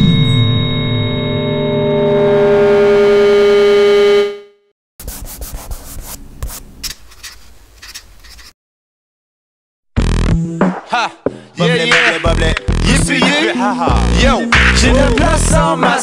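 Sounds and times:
sustained synthesizer chord: 0:00.0 - 0:04.6
scratchy rubbing sound effects: 0:05.0 - 0:08.6.

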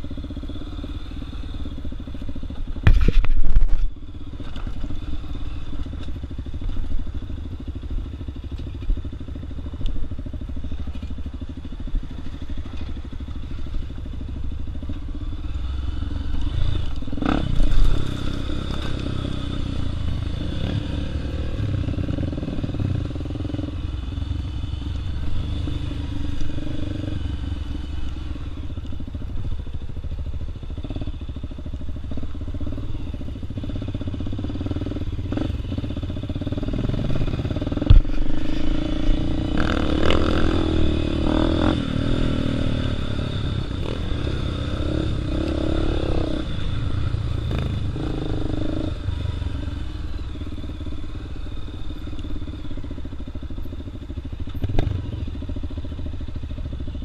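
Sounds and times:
dirt bike engine: 0:00.0 - 0:57.0.

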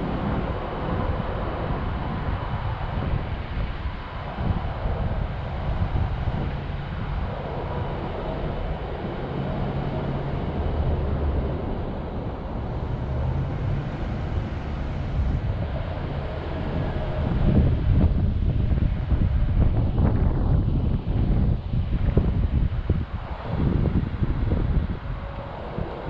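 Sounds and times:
vehicle engines and traffic: 0:00.0 - 0:26.0
wind buffeting microphone: 0:00.0 - 0:26.0.

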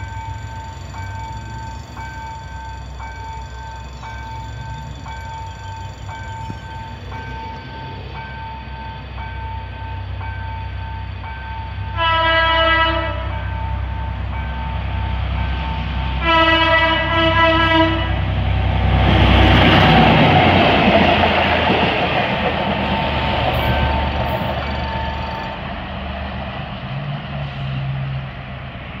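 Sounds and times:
steel wheels on rails: 0:00.0 - 0:12.0, 0:18.2 - 0:29.0
train passing: 0:00.0 - 0:29.0
locomotive horn blasts: 0:11.9 - 0:13.7, 0:16.2 - 0:18.3.

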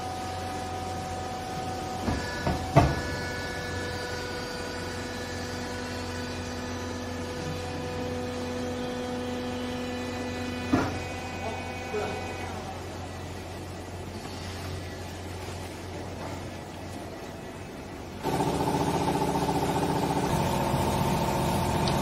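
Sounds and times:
hydraulic baler motor humming: 0:00.0 - 0:13.4, 0:18.2 - 0:22.0.

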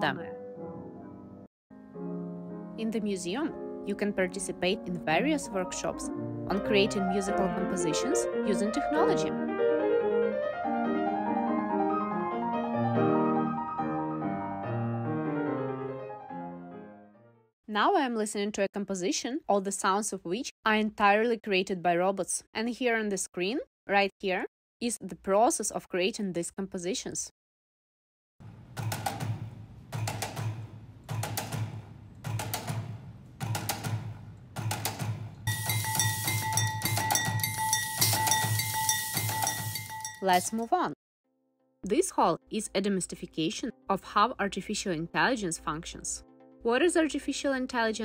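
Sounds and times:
grand piano playing: 0:00.2 - 0:17.5
robotic percussion machines: 0:28.5 - 0:40.7.

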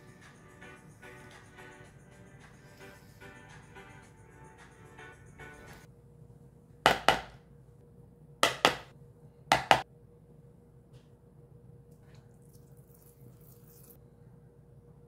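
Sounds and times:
kitchen objects knocking: 0:06.9 - 0:07.4, 0:08.4 - 0:08.9, 0:09.5 - 0:09.8.

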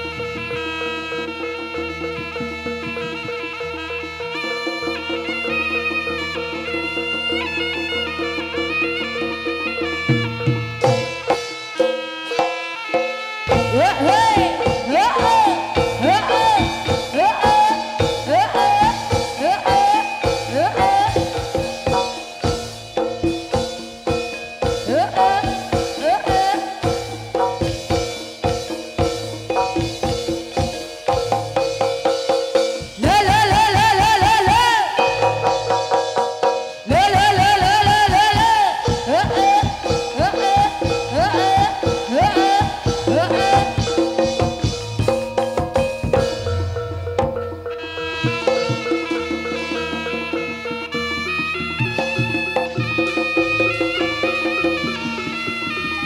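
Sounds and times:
sliding melody: 0:00.0 - 0:56.0
drum strokes: 0:09.9 - 0:56.0
gong-like tones: 0:42.6 - 0:50.0.

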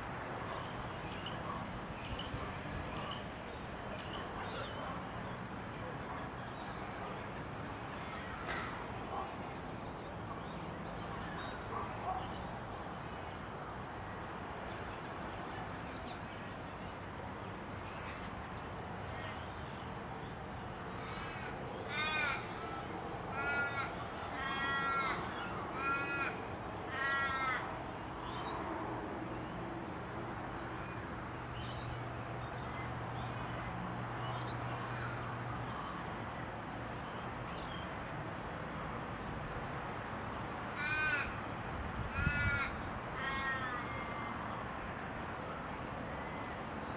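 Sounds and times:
crow cawing: 0:21.0 - 0:27.7, 0:40.8 - 0:41.4, 0:42.1 - 0:44.2.

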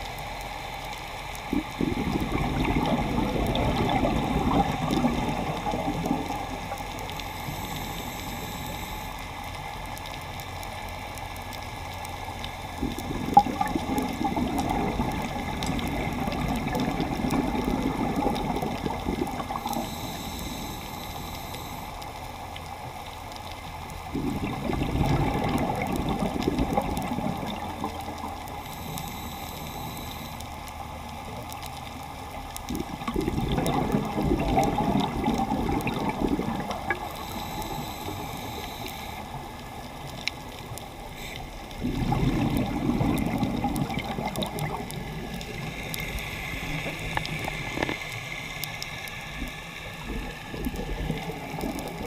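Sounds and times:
underwater water noise: 0:00.0 - 0:52.0
diver's exhaled bubbles rushing: 0:01.5 - 0:06.7, 0:12.8 - 0:19.7, 0:24.1 - 0:28.2, 0:32.7 - 0:37.1, 0:41.8 - 0:48.2, 0:49.3 - 0:52.0.

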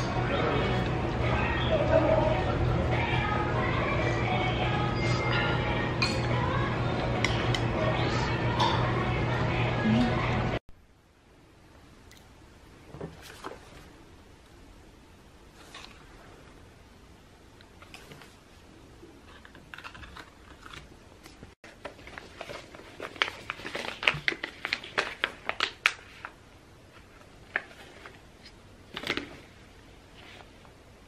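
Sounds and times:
plastic pouch tearing and crinkling: 0:19.3 - 0:20.9, 0:21.8 - 0:26.4.

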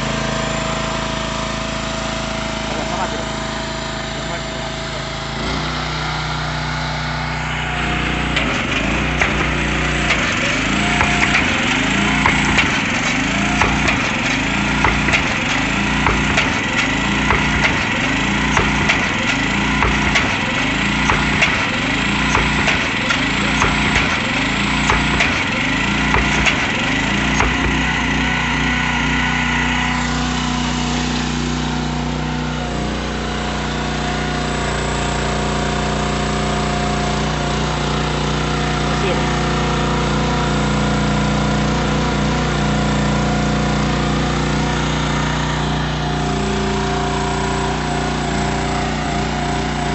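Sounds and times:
small engine running: 0:00.0 - 0:49.9
drilling rig hammer striking: 0:07.8 - 0:32.9.

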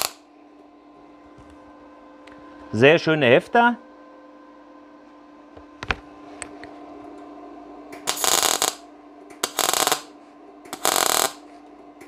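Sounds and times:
welding arc crackle: 0:00.0 - 0:00.2, 0:08.0 - 0:11.4
faint machine hum: 0:00.0 - 0:12.0.

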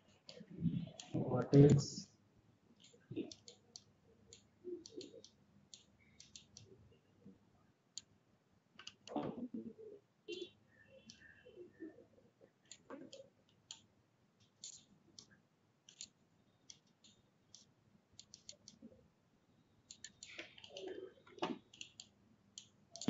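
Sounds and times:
computer mouse clicks: 0:02.8 - 0:06.8, 0:08.8 - 0:09.3, 0:11.0 - 0:11.3, 0:12.6 - 0:18.9, 0:19.9 - 0:23.0.

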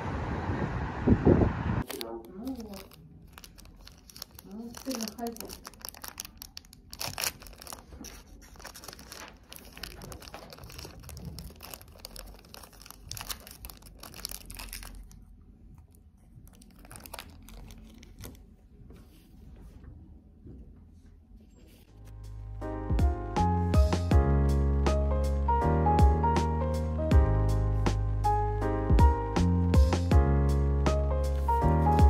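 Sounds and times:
paper or plastic crinkling: 0:01.8 - 0:15.3, 0:16.2 - 0:19.3.

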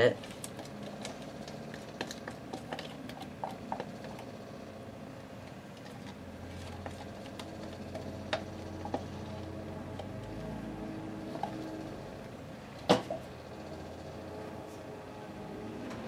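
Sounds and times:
faint steady hum: 0:00.0 - 0:16.0
spatula scraping plastic container: 0:05.8 - 0:10.2.

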